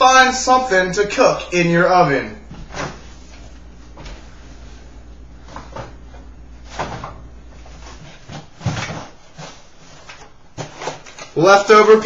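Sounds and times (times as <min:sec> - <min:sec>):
items knocking on fridge shelves: 0:05.4 - 0:12.0.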